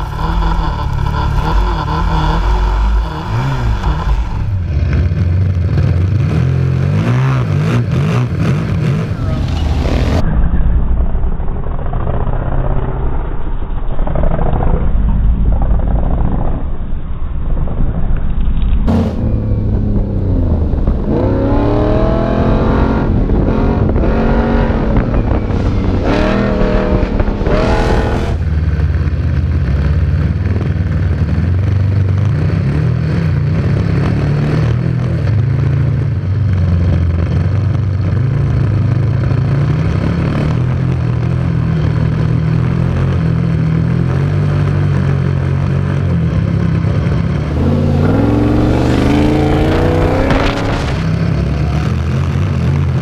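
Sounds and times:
off-road engine revving: 0.0s - 10.2s, 18.9s - 53.0s.

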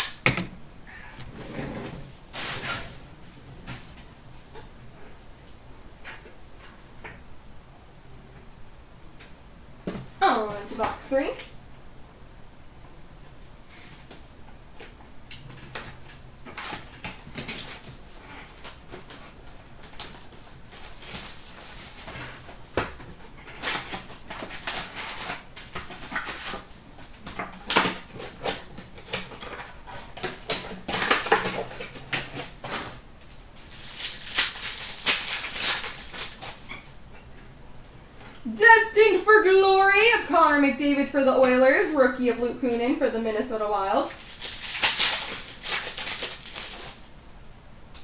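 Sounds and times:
wrappers torn and crumpled: 15.6s - 22.6s, 23.4s - 36.8s, 44.1s - 47.1s.

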